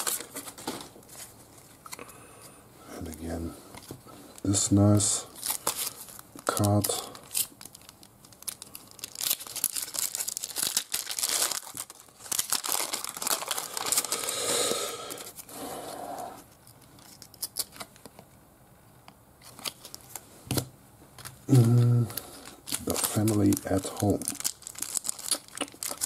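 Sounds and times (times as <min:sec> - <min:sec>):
foil wrapper tearing and crinkling: 0:00.0 - 0:00.4, 0:05.3 - 0:14.4, 0:16.9 - 0:18.0, 0:19.4 - 0:20.2, 0:21.2 - 0:26.0
cards rustling and clicking: 0:19.4 - 0:20.6, 0:21.2 - 0:26.0.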